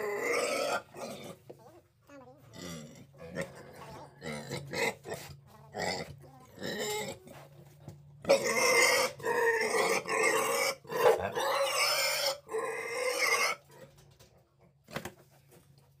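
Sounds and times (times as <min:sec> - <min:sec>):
pig squealing: 0:00.0 - 0:01.4, 0:02.5 - 0:07.2, 0:08.2 - 0:13.7.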